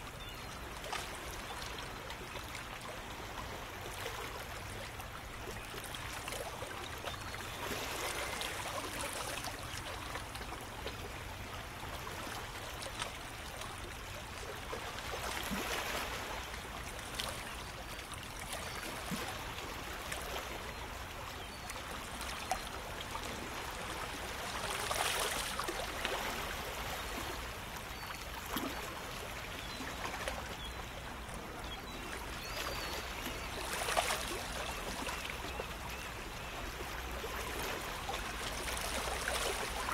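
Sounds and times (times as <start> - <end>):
shallow water lapping on rocks: 14.8 - 16.3, 32.4 - 35.3, 37.4 - 39.9.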